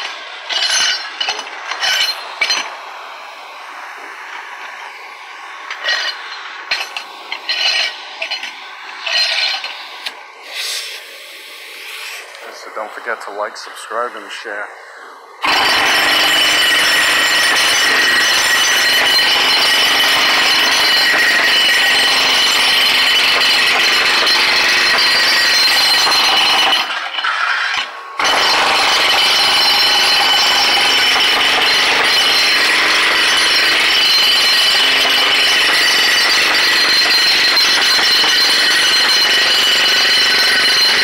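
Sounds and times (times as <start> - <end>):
high whine: 0.0 - 26.1
jackhammer hammering concrete: 15.4 - 41.0.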